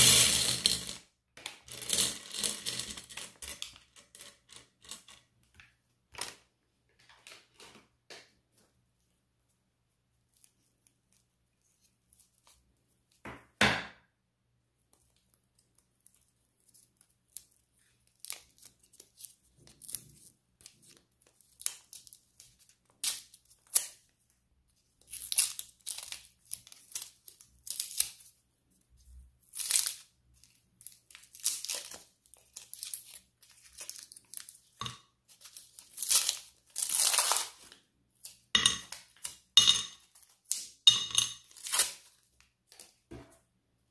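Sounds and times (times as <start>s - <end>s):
paper wrappers tearing and crinkling: 29.5s - 38.4s, 41.5s - 42.3s.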